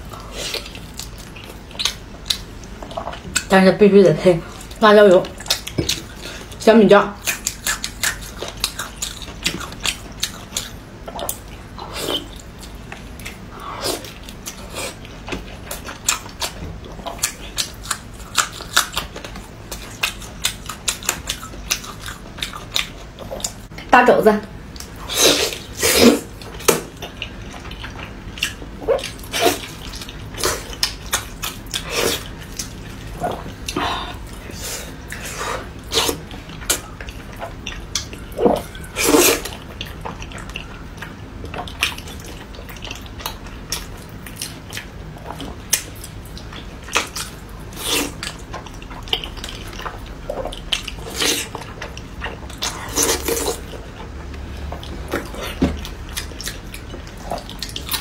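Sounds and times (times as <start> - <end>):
wet chewing and lip smacks: 7.2 - 13.4, 36.1 - 58.0.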